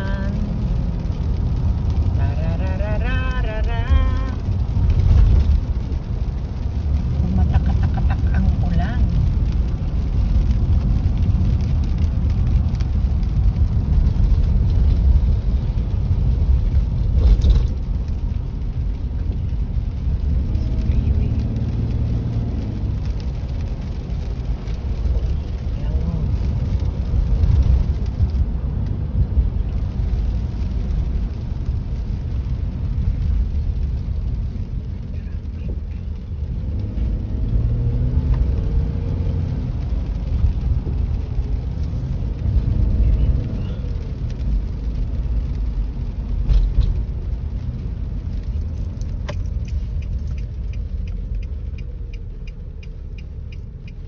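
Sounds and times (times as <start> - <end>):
car engine rumble inside cabin: 0.0 - 54.0
tyres on wet road: 0.0 - 54.0
turn signal ticking: 44.1 - 54.0.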